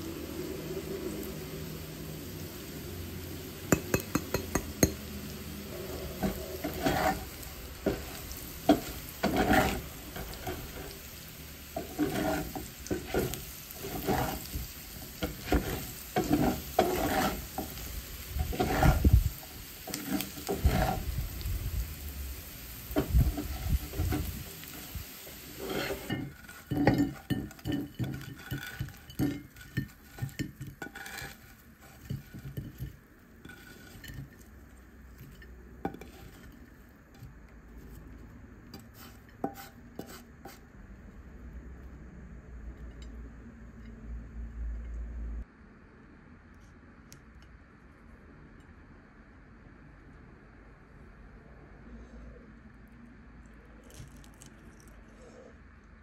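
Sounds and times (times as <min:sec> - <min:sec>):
potatoes sizzling in a frying pan: 0:00.0 - 0:37.8
scraping in a pan: 0:03.4 - 0:40.8.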